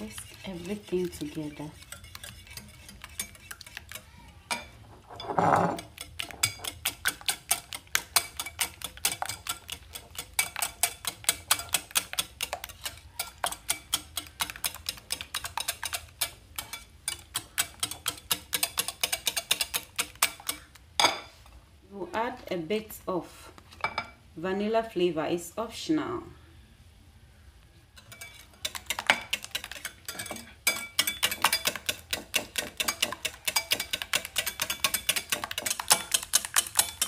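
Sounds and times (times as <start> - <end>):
whisk clicking against bowl: 0.0 - 4.1, 5.8 - 20.7, 28.6 - 37.0.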